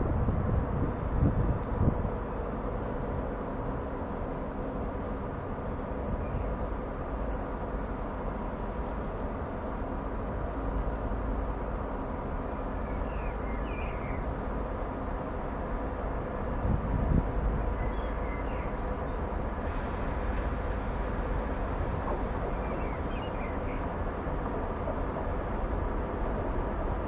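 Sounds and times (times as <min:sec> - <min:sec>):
diesel locomotive engine rumbling: 0:00.0 - 0:27.0
faint chirps: 0:17.7 - 0:19.1.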